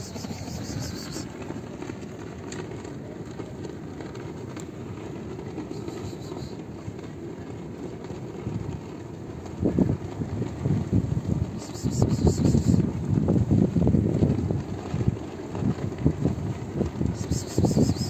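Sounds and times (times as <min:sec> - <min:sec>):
wind on microphone: 0:08.3 - 0:18.0.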